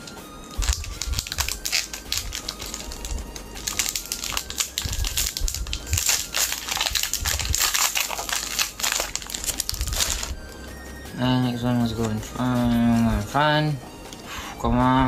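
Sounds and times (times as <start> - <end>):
foil pack crinkling as torn open: 0.0 - 10.4.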